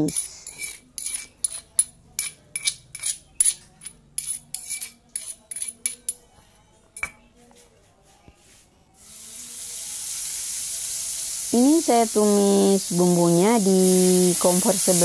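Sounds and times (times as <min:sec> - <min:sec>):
metal spoon scraping stone mortar: 0:00.0 - 0:06.3
paste frying in hot pan: 0:09.0 - 0:15.0.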